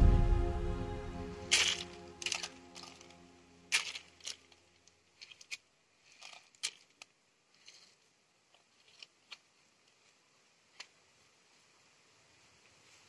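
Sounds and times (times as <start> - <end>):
handling noises: 1.4 - 9.5
seeds clicking on cardboard: 3.7 - 11.0.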